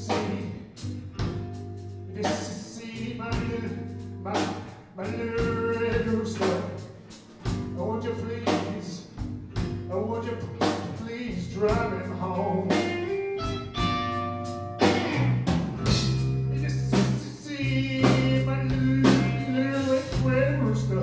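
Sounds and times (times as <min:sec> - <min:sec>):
blues band playing: 0:00.0 - 0:21.0
electric guitar lead line: 0:11.8 - 0:21.0
drum hits: 0:12.8 - 0:16.4.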